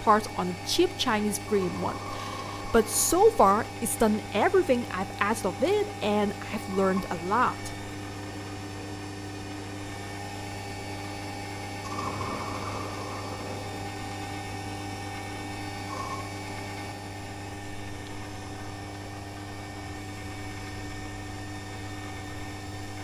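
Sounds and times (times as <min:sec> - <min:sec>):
lathe motor hum: 0:00.0 - 0:23.0
lathe cutting metal: 0:11.8 - 0:17.8.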